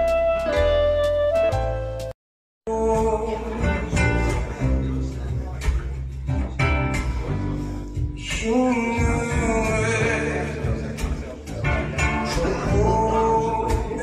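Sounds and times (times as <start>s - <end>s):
guitar accompaniment: 0.0s - 2.1s, 2.7s - 14.0s
man singing long notes: 2.7s - 5.1s, 8.2s - 14.0s.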